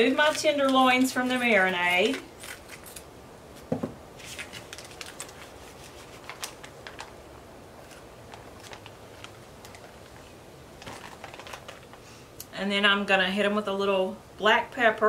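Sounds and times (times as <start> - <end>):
plastic bag crinkling: 4.2 - 12.1.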